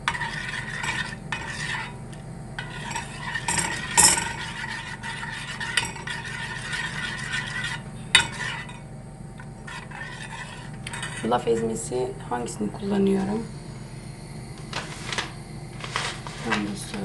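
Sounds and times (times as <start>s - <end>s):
spoon stirring porridge in pot: 0.0s - 11.4s.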